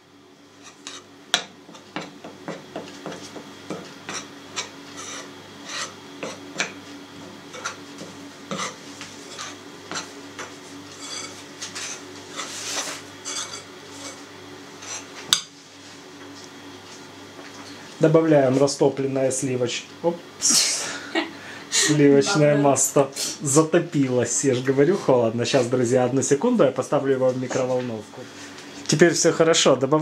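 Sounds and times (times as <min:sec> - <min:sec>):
fork scraping and tapping bowl: 0:02.8 - 0:06.8, 0:07.5 - 0:14.2.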